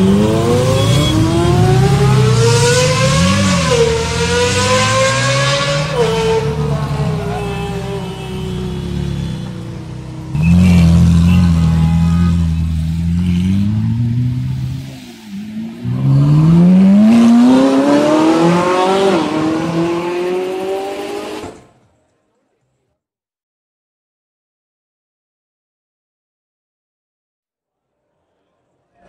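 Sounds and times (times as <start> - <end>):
sports cars accelerating hard: 0.0 - 7.6, 12.3 - 21.8.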